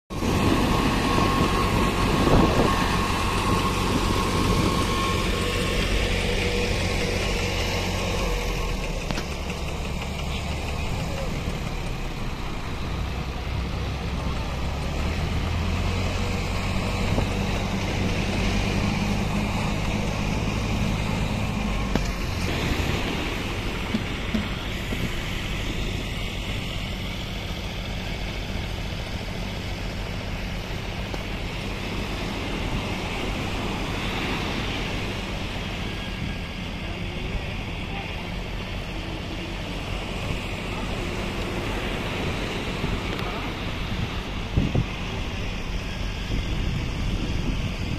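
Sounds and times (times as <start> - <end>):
wind buffeting microphone: 0.1 - 27.8, 40.4 - 47.9
low rumble: 0.1 - 47.9
ocean surf on beach: 0.1 - 47.9.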